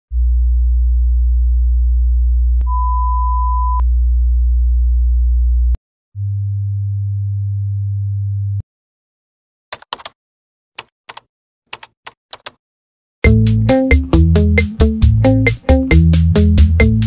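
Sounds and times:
deep sine tone: 0.1 - 8.6
high pure beep: 2.7 - 3.8.

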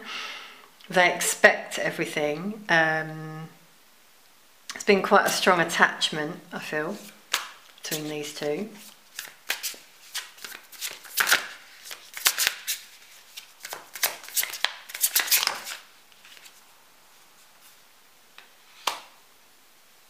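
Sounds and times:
cards being shuffled: 6.9 - 16.6.

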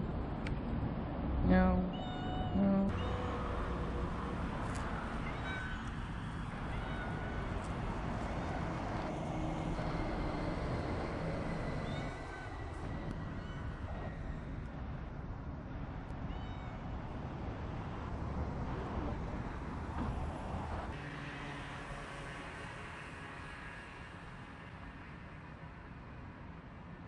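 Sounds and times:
cat meowing: 1.9 - 3.4, 5.2 - 5.9, 6.6 - 7.3, 16.3 - 16.8.

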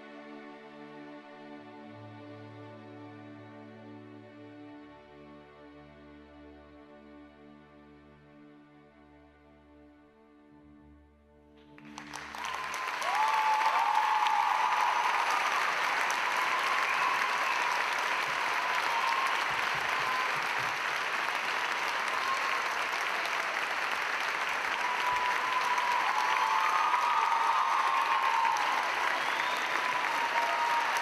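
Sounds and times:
audience applause: 11.8 - 31.0.

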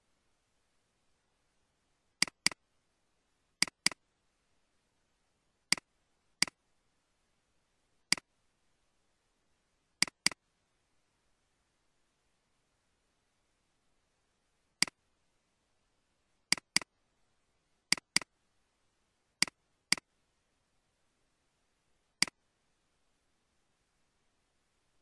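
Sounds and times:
mouse button clicking: 2.2 - 2.6, 3.6 - 4.0, 5.7 - 6.6, 10.0 - 10.4, 16.5 - 16.9, 17.9 - 18.3, 19.4 - 20.1.

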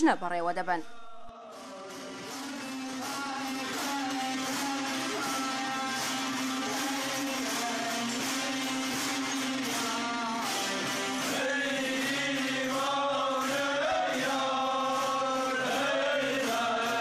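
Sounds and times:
men chanting a hymn: 9.6 - 17.0.

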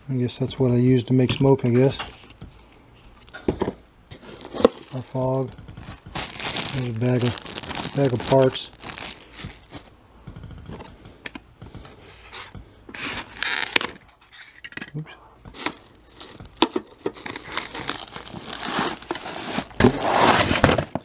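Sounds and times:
cardboard rustling: 4.2 - 9.9, 15.5 - 21.0
plastic bag crinkling: 4.2 - 10.0, 15.5 - 21.0.

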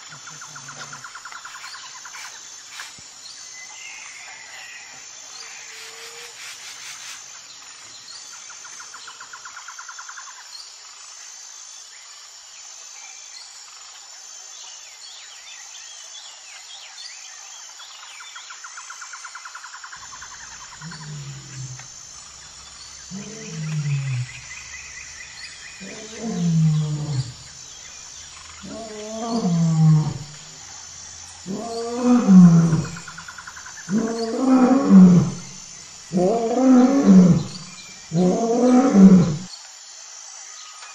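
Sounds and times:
insects trilling: 0.0 - 40.9
birds chirping: 20.0 - 39.5
lion roaring: 20.4 - 21.9, 23.0 - 24.6, 25.7 - 27.5, 28.6 - 30.6, 31.4 - 33.2, 33.9 - 39.5.

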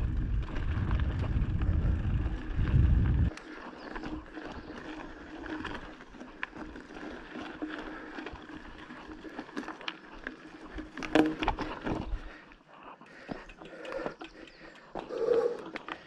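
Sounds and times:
bicycle tyres rolling on trail: 0.0 - 16.0
bicycle knocks and rattles: 4.0 - 12.3.

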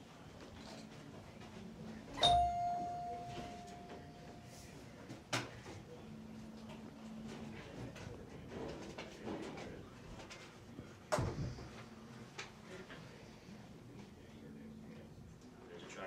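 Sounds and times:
bell ding ringing: 2.2 - 4.7.

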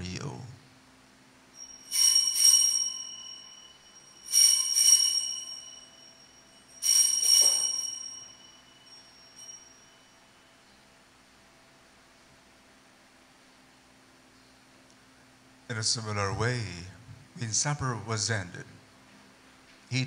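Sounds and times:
altar bells jangling: 1.6 - 10.6.

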